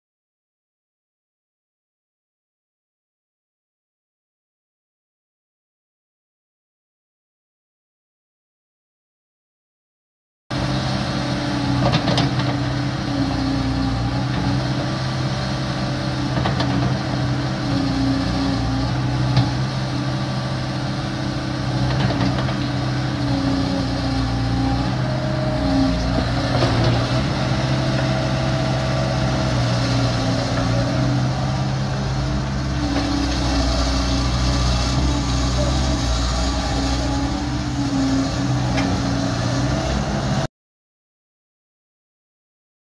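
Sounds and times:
excavator diesel engine running: 0:10.5 - 0:40.5.

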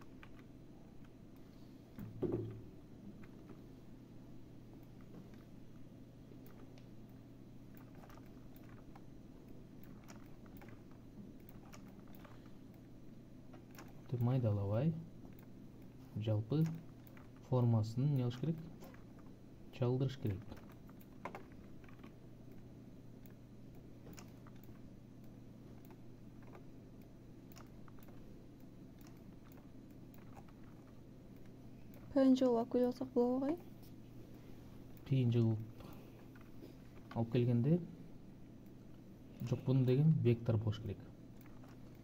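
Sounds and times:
computer mouse clicks: 0:00.0 - 0:02.6, 0:06.3 - 0:12.9, 0:13.5 - 0:19.3, 0:20.0 - 0:32.2, 0:38.6 - 0:42.0
low steady hum: 0:00.0 - 0:42.0.

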